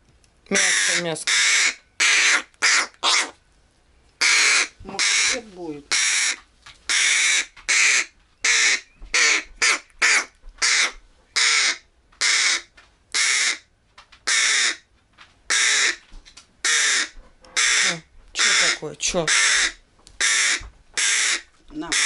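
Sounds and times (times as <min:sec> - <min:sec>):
young crow begging calls: 0:00.5 - 0:03.4, 0:04.2 - 0:14.8, 0:15.5 - 0:16.0, 0:16.6 - 0:22.0.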